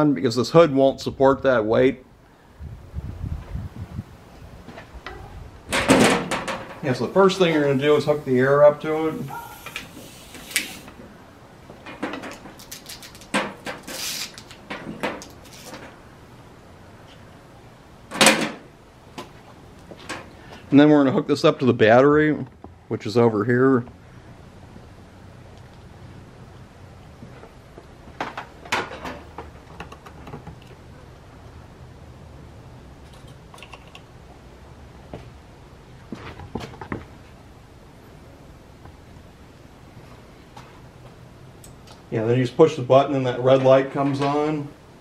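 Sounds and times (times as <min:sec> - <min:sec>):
short air hiss: 0:09.1 - 0:11.0, 0:13.8 - 0:14.5.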